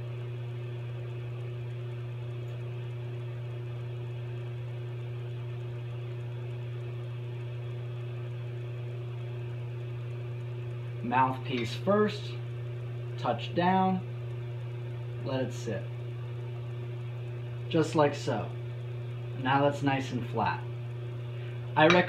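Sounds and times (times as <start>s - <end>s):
low hum: 0.0s - 22.0s.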